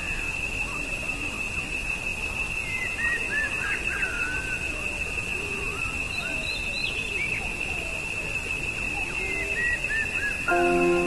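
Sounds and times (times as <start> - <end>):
short high chirps: 10.5 - 11.0.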